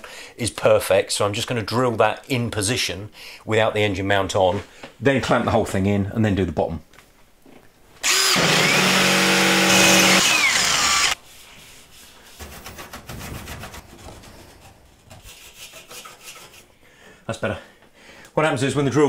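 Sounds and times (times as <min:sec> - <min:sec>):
power drill running: 0:08.0 - 0:11.2
soft scraping by hand: 0:11.2 - 0:16.8.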